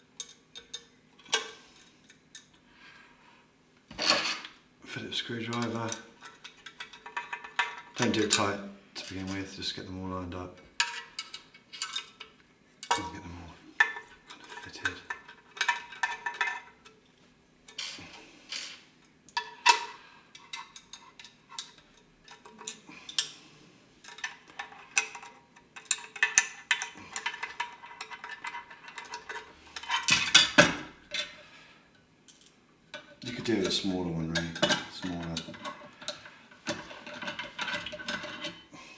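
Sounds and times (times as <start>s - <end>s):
metal clinks and scrapes: 24.0s - 31.5s, 32.3s - 38.7s.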